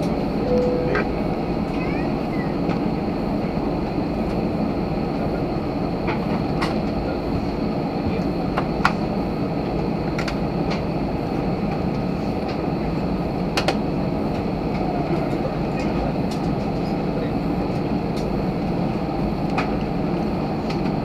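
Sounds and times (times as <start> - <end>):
jet engines rumbling: 0.0 - 21.0
faint high whine: 0.2 - 3.2.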